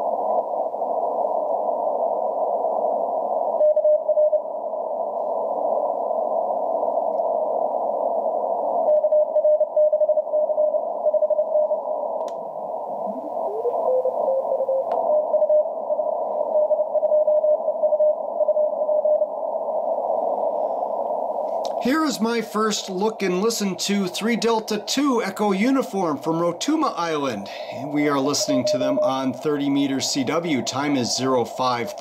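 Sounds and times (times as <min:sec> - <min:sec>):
rising radio tone: 0:12.6 - 0:19.3, 0:21.6 - 0:32.0
radio band hiss: 0:21.6 - 0:32.0
morse code keyed tone: 0:26.0 - 0:31.2.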